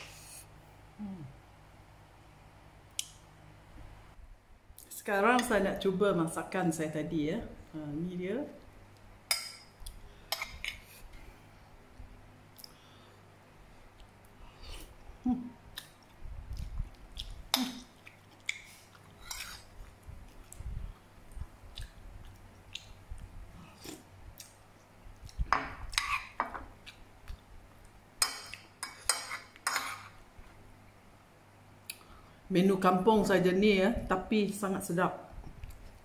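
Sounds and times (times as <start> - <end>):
person chewing food: 15.7 - 25.4.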